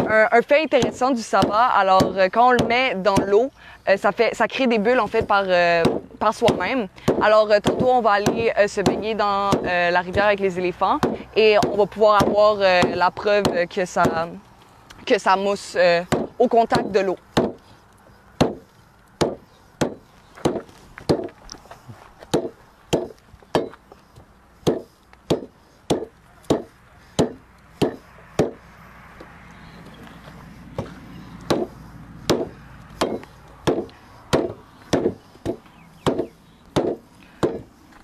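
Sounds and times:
machete chopping branch: 16.1 - 17.6, 18.4 - 21.4, 22.3 - 23.8, 24.6 - 28.6, 30.8 - 37.7.

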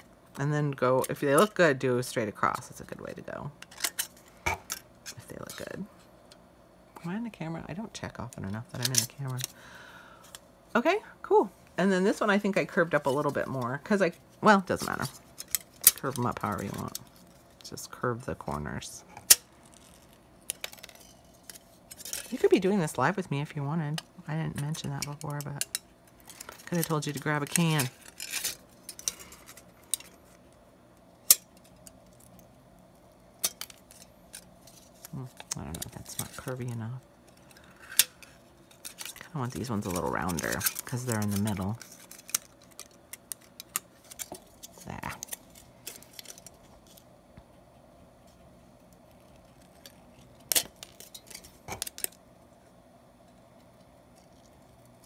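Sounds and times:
metal crinkling: 33.4 - 47.1.

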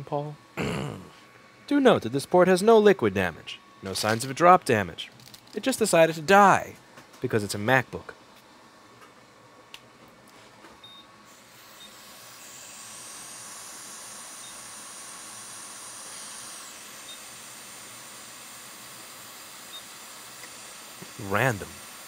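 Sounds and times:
hot air blower hissing: 11.2 - 22.0.

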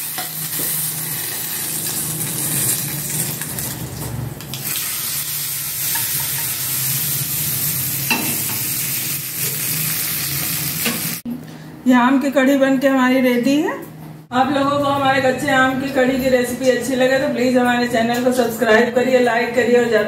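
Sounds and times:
hot oil sizzling: 0.0 - 11.2.

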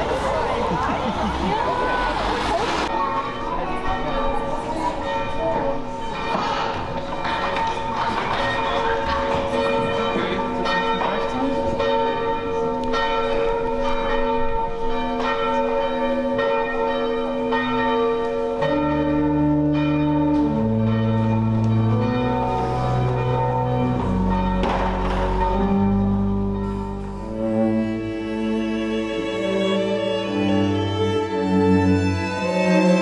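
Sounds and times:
low bowed string notes: 0.0 - 33.0
bell chimes: 2.8 - 27.7.

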